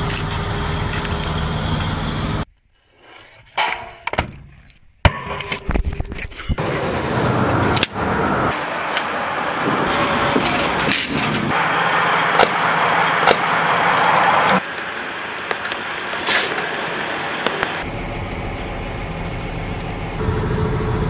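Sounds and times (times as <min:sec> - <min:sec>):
train wheels rolling on rail: 0:08.5 - 0:17.9.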